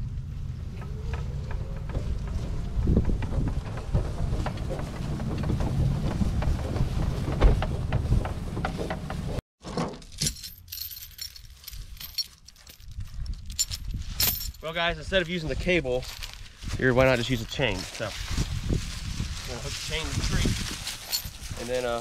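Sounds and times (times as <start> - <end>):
wind buffeting microphone: 0.0 - 9.4, 15.0 - 22.0
heavy steel chain rattling: 10.0 - 14.8, 20.8 - 21.8.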